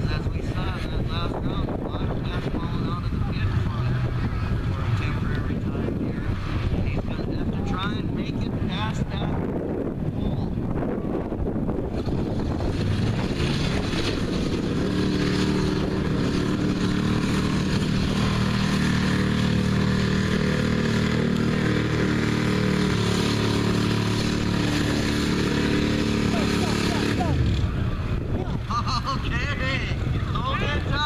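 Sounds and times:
truck engine pulling under load: 11.8 - 28.3.

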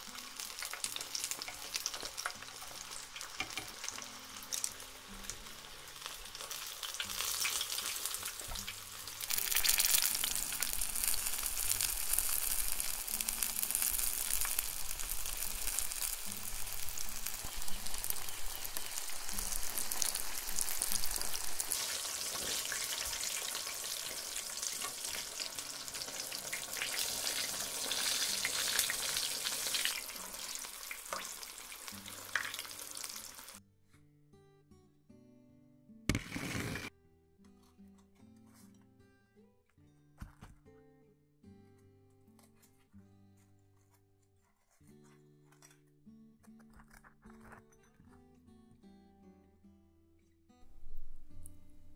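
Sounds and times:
tofu deep-frying in oil: 0.0 - 33.6.

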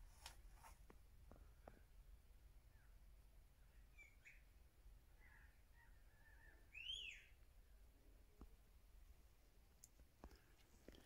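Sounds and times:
faint bird chirps: 2.6 - 7.8.

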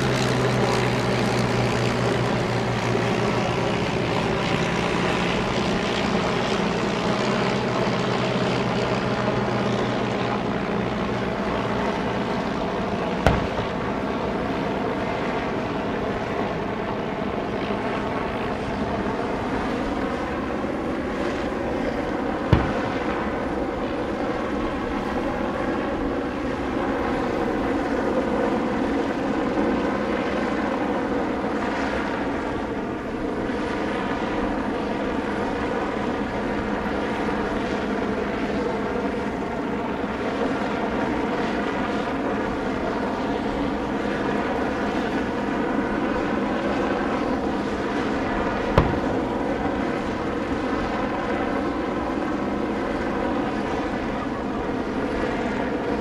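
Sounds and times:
biplane engines droning overhead: 0.0 - 56.0
guns firing: 13.2 - 14.2, 22.5 - 23.5, 48.7 - 49.6.

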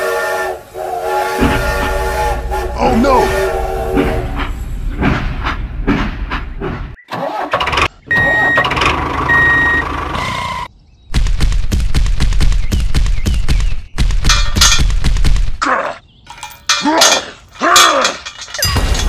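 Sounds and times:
engine running: 7.6 - 10.7.

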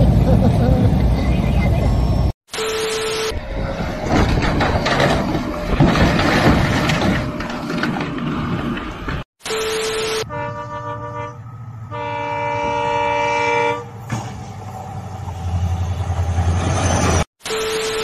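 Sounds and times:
locomotive engine rumble: 0.0 - 2.3, 3.4 - 9.2
locomotive horn blasts: 10.2 - 14.1.

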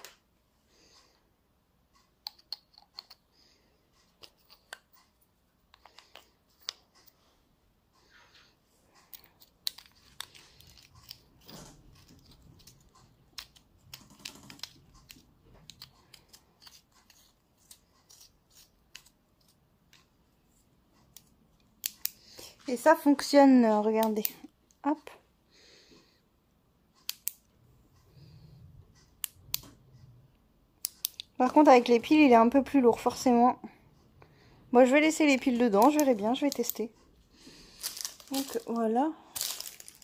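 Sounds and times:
batteries clicking into pen: 9.1 - 19.2, 35.8 - 36.9
soft handling noise: 34.9 - 40.0.

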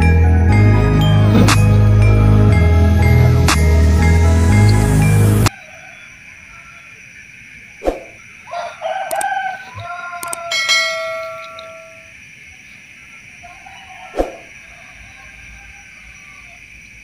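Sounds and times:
rooster crowing: 5.3 - 7.2, 8.4 - 12.2, 13.3 - 16.7.

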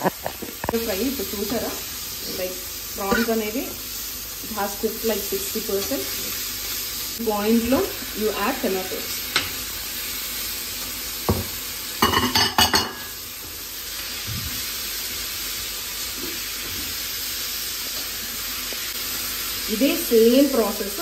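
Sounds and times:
food sizzling in a frying pan: 0.0 - 21.0.

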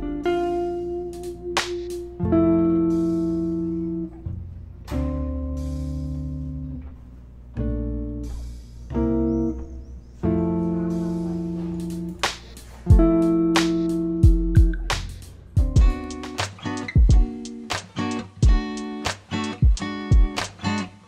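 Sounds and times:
slow guitar chords: 0.0 - 21.0.

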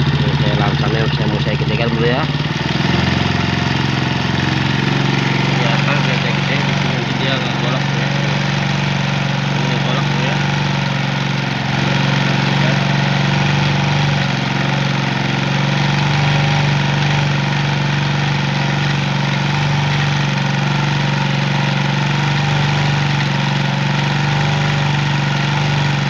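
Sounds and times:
motorcycle engine idling: 0.0 - 26.0.

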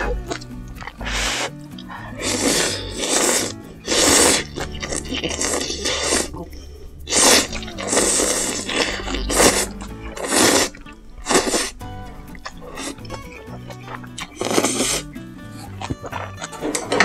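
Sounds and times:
chewing and mouth sounds: 0.0 - 17.0
noodles being slurped: 0.2 - 17.0.

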